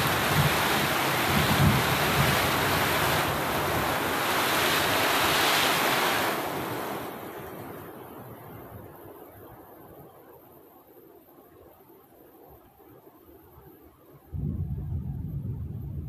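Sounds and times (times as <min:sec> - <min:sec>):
wind buffeting microphone: 0:00.0 - 0:07.8, 0:14.4 - 0:16.0
heavy rain pouring: 0:00.0 - 0:08.0.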